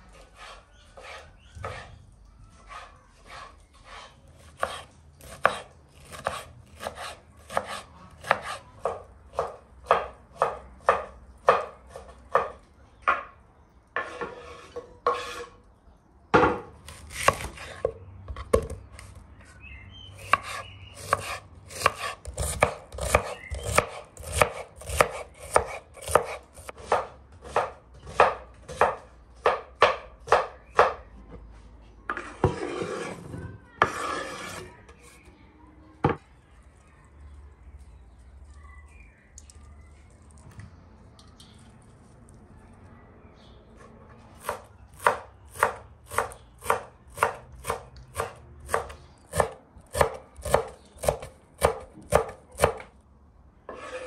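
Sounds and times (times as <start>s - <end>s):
knife scraping board: 0.1s - 2.0s, 2.6s - 10.0s, 14.0s - 15.6s, 20.2s - 28.9s, 32.1s - 35.2s, 53.7s - 54.0s
knife chopping on wooden board: 0.4s - 1.9s, 2.7s - 13.3s, 16.4s - 19.1s, 20.2s - 31.1s, 44.4s - 52.9s.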